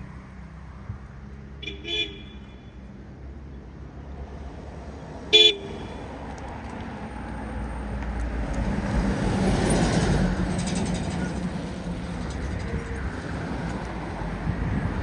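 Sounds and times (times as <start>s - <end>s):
low road rumble: 0.0s - 15.0s
vehicle horn toot: 1.6s - 2.8s, 5.3s - 6.0s
vehicle approaching: 6.0s - 15.0s.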